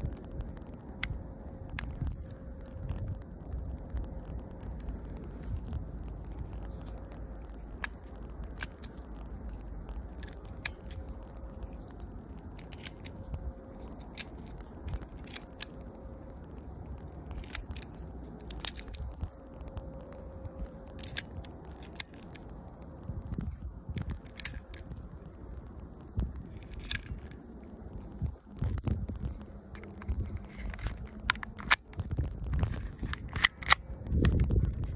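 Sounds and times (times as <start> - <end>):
pellets clicking into magazine: 17.3 - 19.8, 20.9 - 22.4, 32.7 - 34.4.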